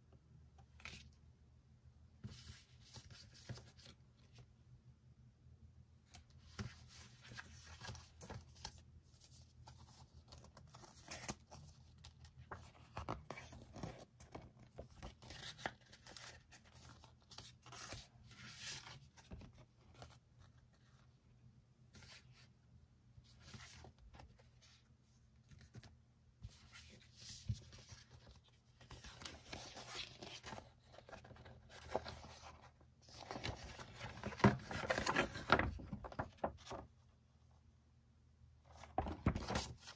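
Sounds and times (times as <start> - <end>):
paper and card rustling: 23.3 - 36.9, 38.7 - 39.9.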